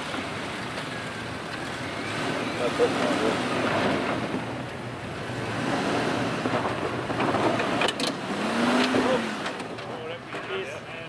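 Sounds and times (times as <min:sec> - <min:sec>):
vehicle engine under load: 0:00.0 - 0:11.0.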